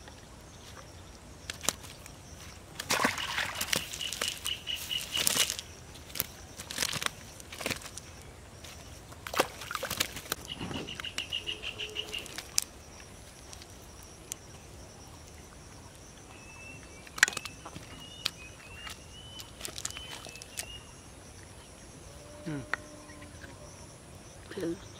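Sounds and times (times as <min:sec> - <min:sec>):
fish flapping and slapping: 0:01.5 - 0:11.4, 0:12.0 - 0:13.8, 0:17.1 - 0:20.7
net rustling and crackling: 0:01.5 - 0:11.4, 0:12.0 - 0:13.9, 0:19.3 - 0:20.6.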